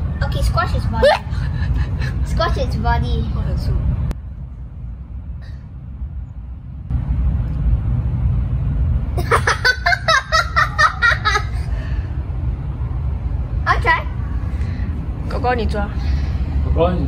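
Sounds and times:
low steady rumble: 0.0s - 17.0s
person laughing: 9.2s - 11.8s.

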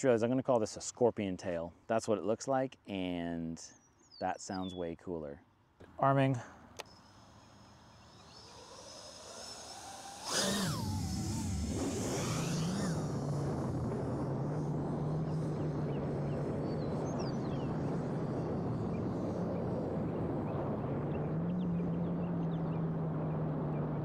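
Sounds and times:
quadcopter motors and propellers: 6.8s - 24.0s.

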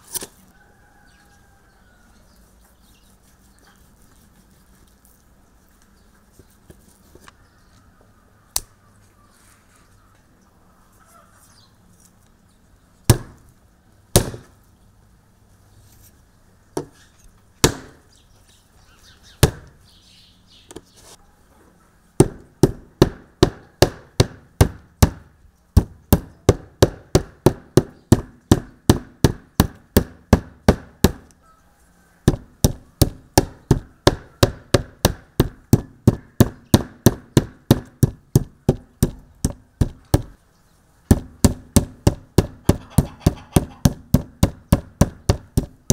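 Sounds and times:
mallet pounding meat on wood: 19.4s - 19.7s, 22.2s - 25.2s, 25.8s - 31.2s, 32.3s - 40.4s, 41.1s - 45.9s.

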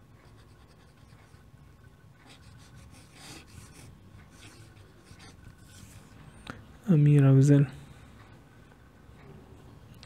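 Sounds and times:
low steady hum: 0.0s - 10.0s
pen scratching on paper: 0.2s - 1.5s, 2.2s - 6.1s.

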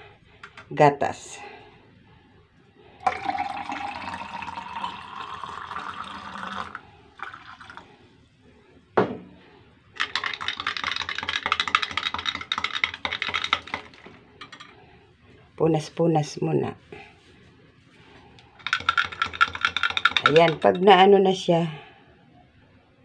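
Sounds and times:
milk pouring into glass mug: 3.0s - 8.0s, 10.0s - 14.7s, 18.6s - 20.8s
plastic straw clicking against glass: 10.0s - 14.0s, 18.6s - 20.7s.

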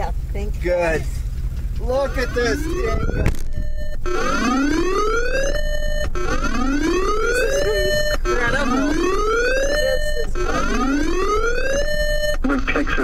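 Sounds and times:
rising electronic siren whoop: 2.2s - 12.4s.

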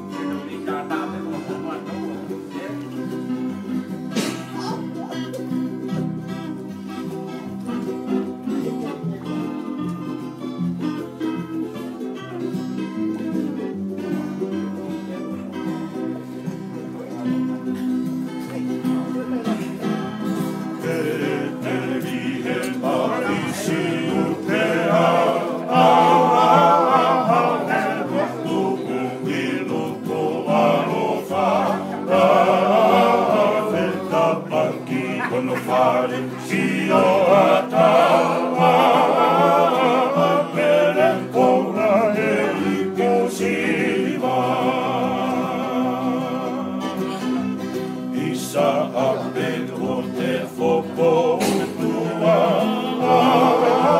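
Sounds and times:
strummed acoustic guitar: 0.0s - 53.9s
ukulele: 0.0s - 53.9s
men singing together: 20.3s - 53.9s.

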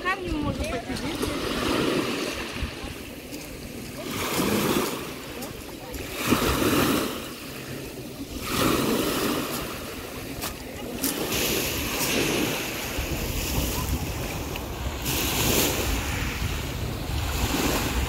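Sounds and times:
waves washing onto pebbles: 0.2s - 18.0s
wind rumble on microphone: 8.4s - 18.0s.

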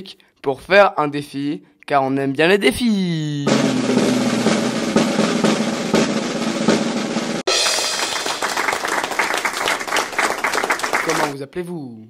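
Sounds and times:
held low tone: 3.1s - 5.0s
quick drum strokes: 3.5s - 8.8s
snare drum roll: 3.5s - 9.8s.

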